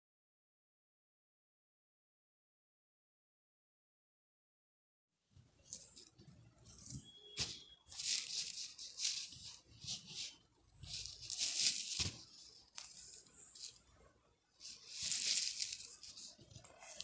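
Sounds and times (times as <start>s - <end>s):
hair rustling swishes: 6.7s - 14.0s, 14.6s - 17.0s.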